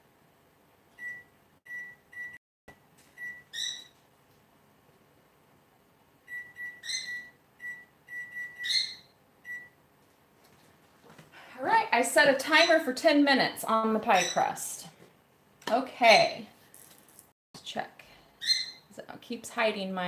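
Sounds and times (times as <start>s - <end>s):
kitchen timer beeping: 1.0s - 2.4s, 6.3s - 9.8s.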